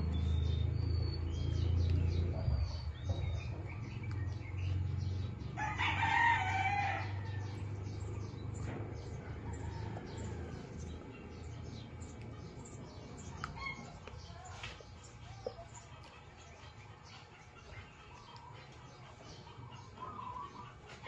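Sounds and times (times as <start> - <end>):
rooster crowing: 5.6 - 7.6.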